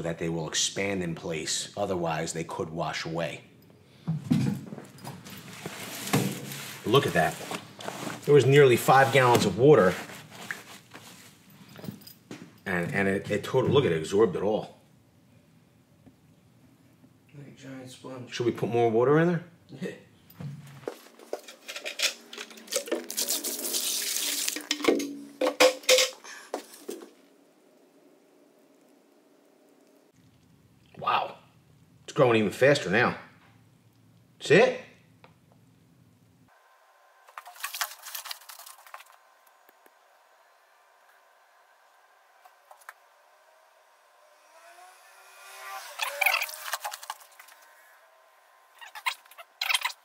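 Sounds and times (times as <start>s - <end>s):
wet flood bag squeaking: 5.4s - 11.4s, 45.4s - 47.8s, 48.8s - 50.0s
water pouring into wheelbarrow: 22.7s - 24.8s.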